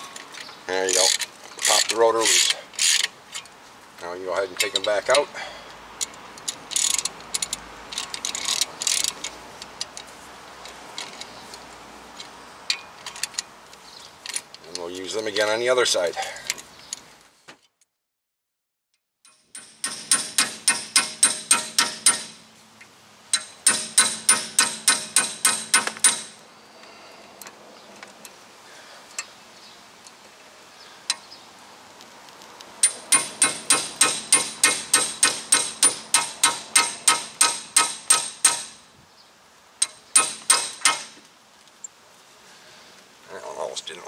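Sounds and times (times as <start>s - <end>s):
hammer striking metal: 19.3s - 22.4s, 23.3s - 26.4s, 32.8s - 38.8s, 39.8s - 41.1s.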